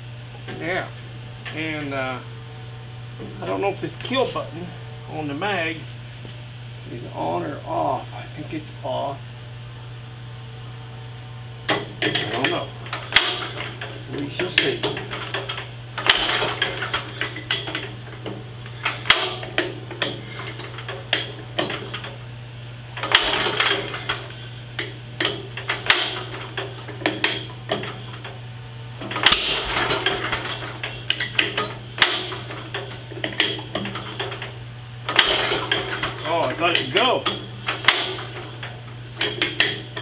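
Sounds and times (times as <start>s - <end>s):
engine hand-cranking clanks: 11.7s - 22.2s, 23.0s - 28.4s, 29.0s - 40.0s.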